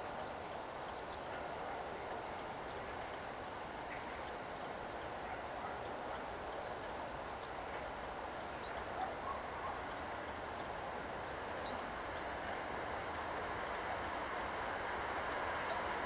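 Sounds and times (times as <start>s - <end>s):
distant train rail rumble: 0.0s - 16.0s
faint bird chirps: 8.2s - 10.1s.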